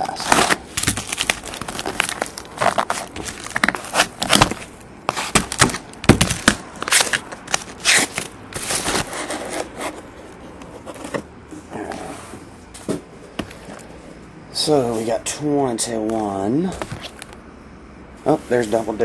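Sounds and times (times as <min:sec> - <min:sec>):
cardboard boxes scraping and rustling: 0:00.0 - 0:13.8
boxes scuffing as stacked: 0:02.7 - 0:07.2.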